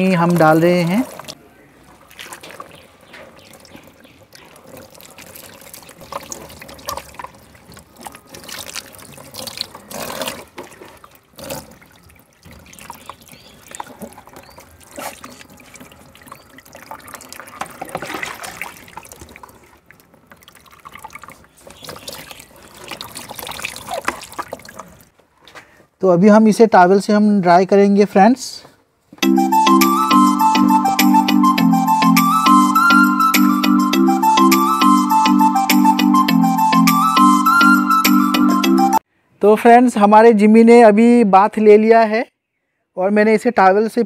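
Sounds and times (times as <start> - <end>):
water poured and splashing: 0.0 - 25.1.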